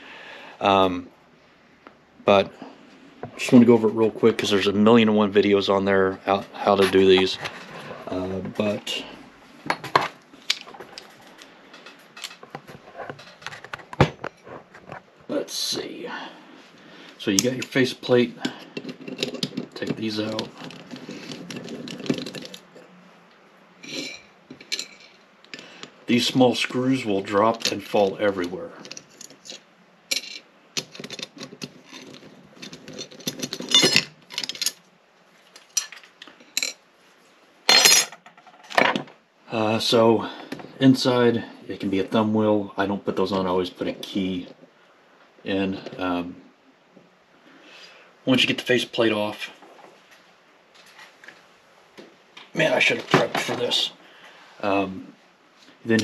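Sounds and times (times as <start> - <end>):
metal parts clattering: 18.7 - 22.8, 28.8 - 34.8, 35.6 - 36.8, 37.7 - 39.0.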